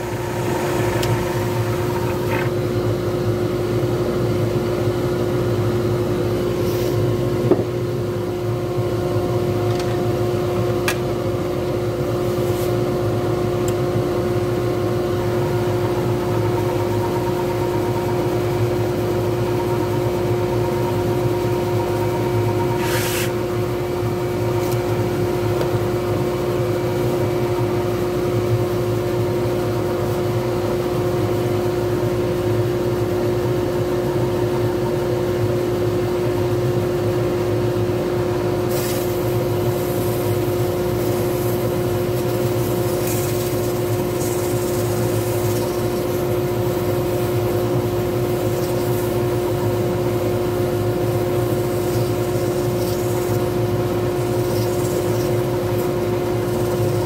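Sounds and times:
wood lathe motor hum: 0:00.0 - 0:02.5, 0:39.3 - 0:57.0.

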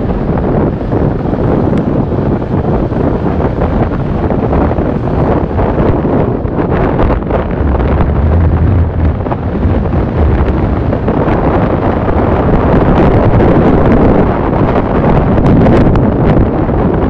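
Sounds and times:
low hum: 0:00.0 - 0:14.6
wind buffeting microphone: 0:00.0 - 0:17.0
car engine: 0:06.4 - 0:12.7.

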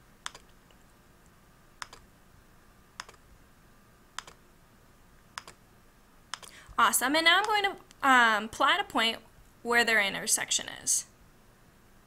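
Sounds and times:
faint room hiss: 0:00.0 - 0:12.0
computer mouse clicking: 0:00.2 - 0:00.6, 0:01.8 - 0:02.0, 0:03.0 - 0:03.2, 0:04.2 - 0:04.4, 0:05.4 - 0:05.6, 0:06.3 - 0:06.6.

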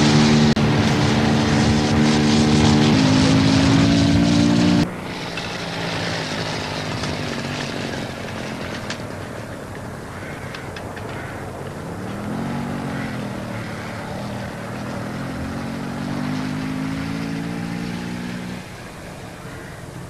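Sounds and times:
moped engine: 0:00.0 - 0:20.0
steady background noise: 0:00.0 - 0:20.0.

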